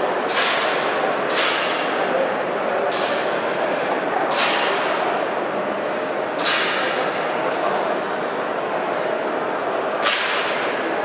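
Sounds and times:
steady background din: 0.0s - 11.0s
sharp echoing cracks: 0.2s - 2.2s, 2.8s - 5.2s, 6.3s - 7.6s, 10.0s - 10.9s.

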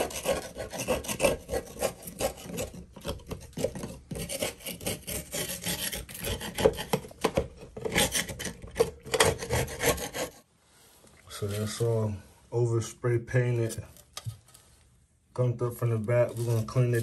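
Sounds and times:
metal tool scraping sheet metal: 7.8s - 10.4s.

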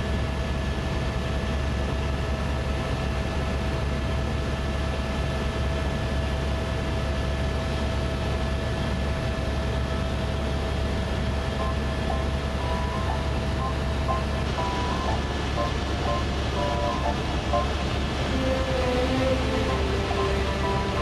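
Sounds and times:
helicopter rotor and engine drone: 0.0s - 21.0s
high whine: 11.4s - 21.0s.

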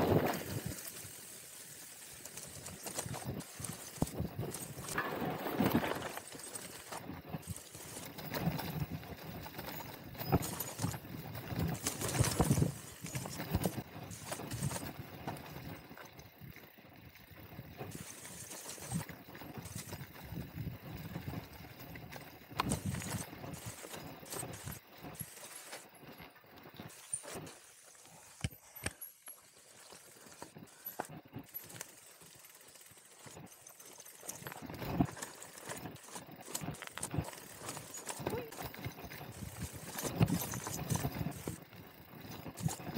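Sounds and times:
tyre and wind noise: 0.0s - 1.2s, 2.2s - 27.6s, 34.2s - 42.9s
bike knocks and rattles: 2.7s - 16.4s, 33.2s - 42.9s.

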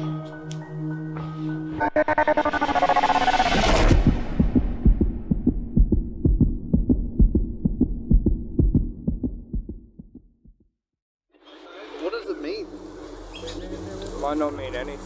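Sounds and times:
low hum: 1.8s - 10.2s
heartbeat thuds: 3.8s - 10.8s.

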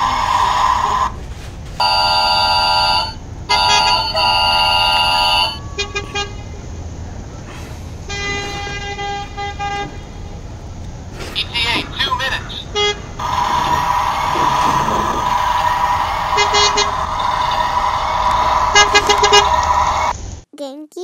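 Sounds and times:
electronic toy horn honking: 1.8s - 6.4s, 16.3s - 17.2s, 18.6s - 19.7s.

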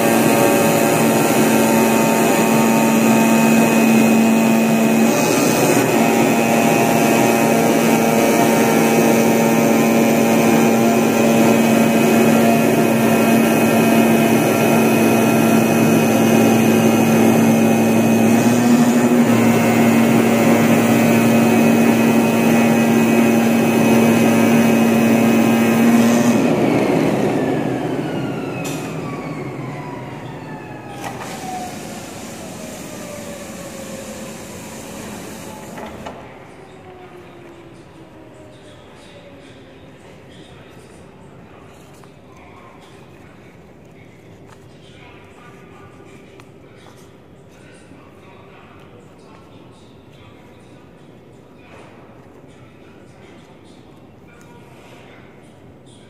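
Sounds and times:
cutting machine humming and buzzing: 0.0s - 37.2s
machine winding down whine: 0.0s - 38.8s.

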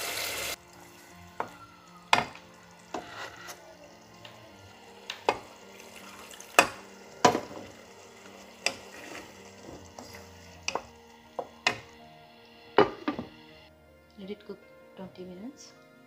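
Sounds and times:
spatula stirring thick curry: 2.8s - 3.6s, 8.1s - 11.0s.

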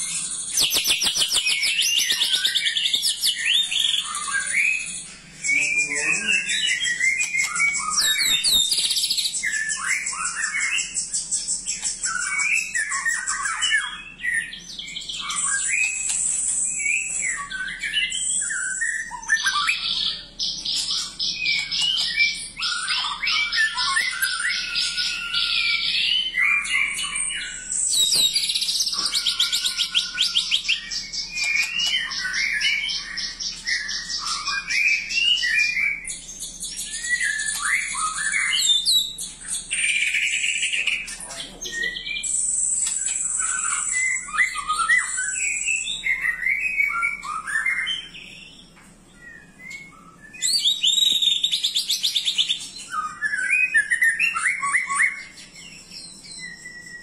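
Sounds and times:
bird singing whistles and trills: 0.0s - 57.0s.

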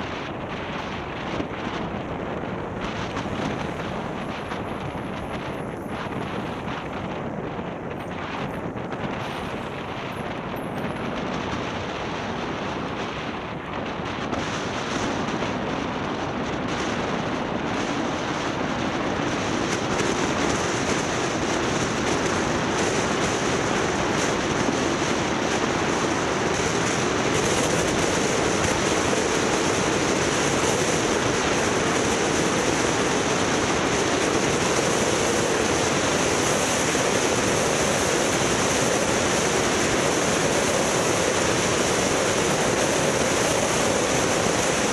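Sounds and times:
low hum: 0.0s - 15.5s
road and wind noise from vehicle: 0.0s - 44.9s.

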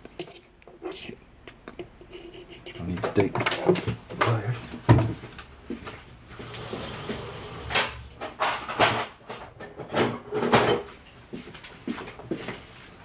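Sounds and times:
objects knocking and scraping: 2.6s - 11.2s.

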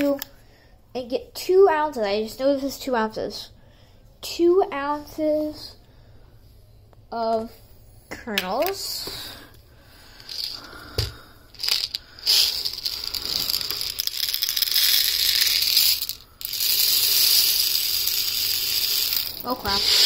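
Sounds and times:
popcorn kernels pouring into cup: 11.6s - 20.0s.

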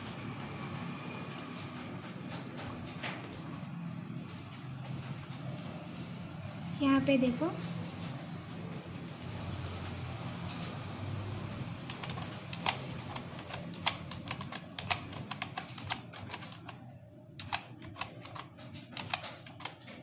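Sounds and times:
keyboard typing clicks: 2.3s - 3.5s, 11.9s - 16.8s, 17.4s - 20.0s.

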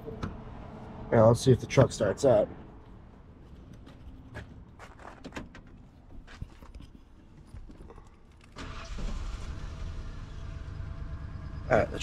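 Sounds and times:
truck engine starting and running: 8.4s - 12.0s.

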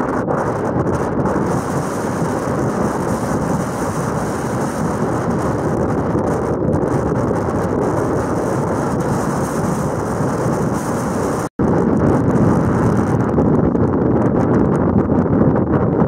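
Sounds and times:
storm wind against a tent: 0.0s - 16.0s.

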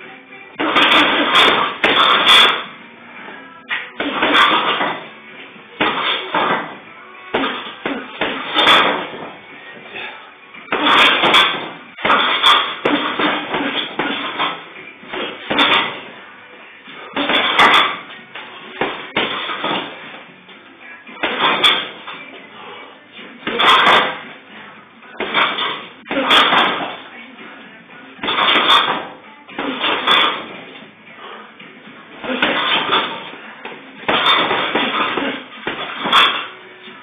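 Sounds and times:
gloved punches on heavy bag: 0.6s - 2.7s, 4.0s - 5.1s, 5.8s - 9.4s, 10.7s - 16.1s, 17.1s - 20.1s, 21.2s - 22.2s, 23.4s - 24.3s, 25.2s - 27.0s, 28.2s - 30.7s, 32.2s - 36.5s.

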